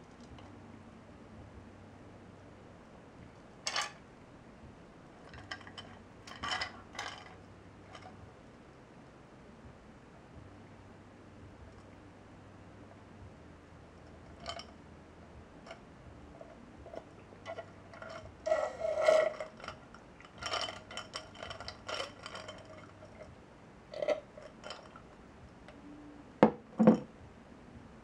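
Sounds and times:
ice cubes clinking in glass: 17.5 - 23.2
glass knocking on table: 26.4 - 27.1.

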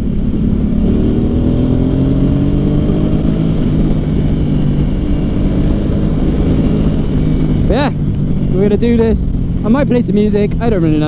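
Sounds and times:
motorcycle engine accelerating: 0.0 - 11.0
wind rumble on microphone: 0.0 - 11.0.

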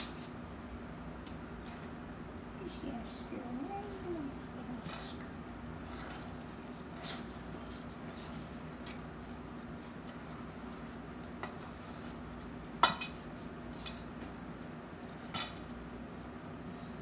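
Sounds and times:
utensil scraping metal bowl: 3.8 - 9.0.

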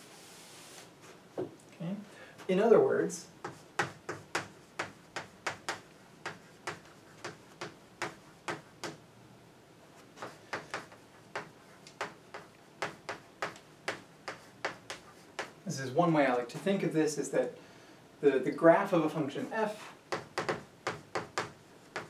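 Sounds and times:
chalk tapping on a blackboard: 3.4 - 9.0, 10.2 - 15.6, 20.1 - 22.0.

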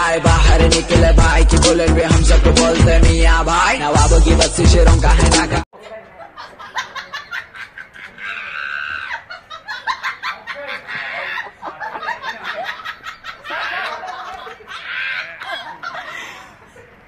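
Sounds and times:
people laughing: 0.3 - 1.7, 5.2 - 17.0.

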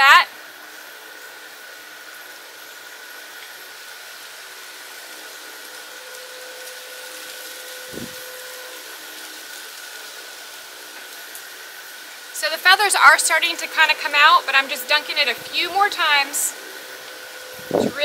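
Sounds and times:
propane burner hissing: 0.0 - 18.0.

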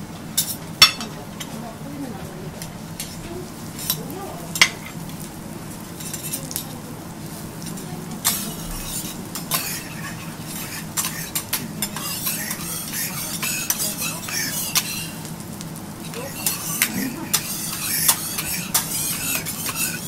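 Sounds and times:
oil sizzling on griddle: 0.0 - 20.0
metal spatulas tapping plate: 0.4 - 1.1, 8.2 - 15.2, 16.4 - 20.0.

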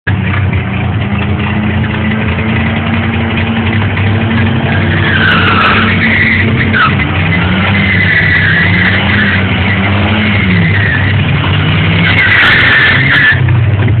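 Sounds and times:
race car engines running: 0.1 - 14.0
squeal rising and dipping in pitch: 4.4 - 11.2.

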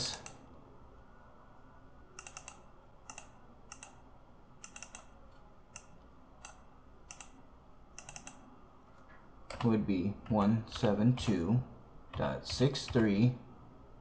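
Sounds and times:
faint computer clicking: 0.0 - 0.5, 2.1 - 11.4.

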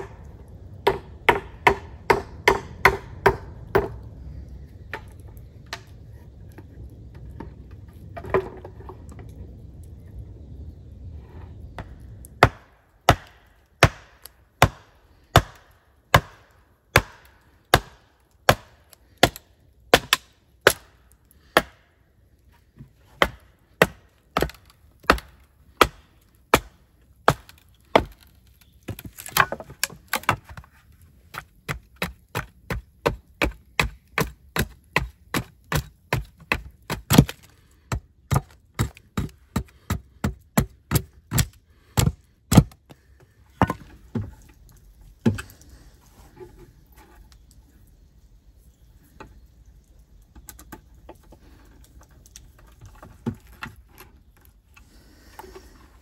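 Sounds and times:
wood being chopped: 0.0 - 4.1, 11.8 - 21.9, 22.8 - 44.5, 45.2 - 45.5.

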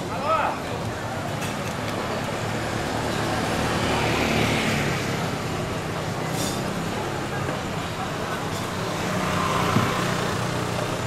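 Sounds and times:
vehicle passing: 8.0 - 11.0.

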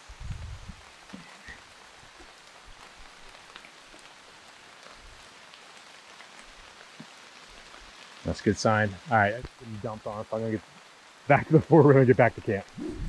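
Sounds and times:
steady rain in forest: 0.0 - 13.0
close raindrop ticks: 0.2 - 12.8
low rumble: 12.7 - 13.0.

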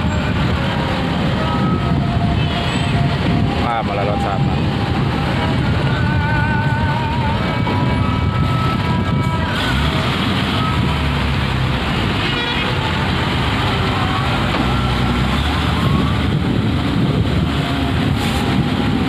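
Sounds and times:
diesel engines idling: 4.4 - 19.0.

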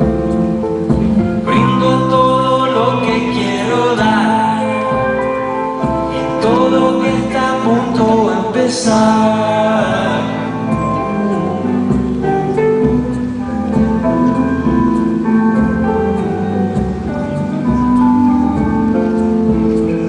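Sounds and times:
electric guitar: 0.0 - 20.0
keyboard playing: 0.0 - 20.0
man singing: 1.4 - 12.0.

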